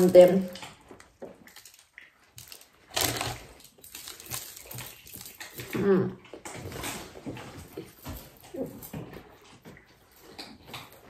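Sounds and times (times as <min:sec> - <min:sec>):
close chewing: 0:00.0 - 0:11.0
loud crunch: 0:01.2 - 0:05.8.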